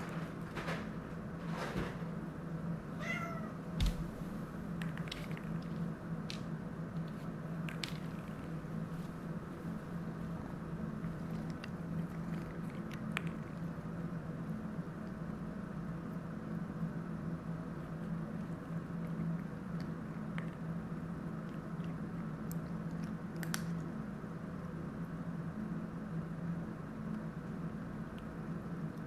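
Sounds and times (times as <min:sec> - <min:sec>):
steady low hum: 0:00.0 - 0:29.0
cat meowing: 0:03.0 - 0:03.6
thump: 0:03.8 - 0:04.2.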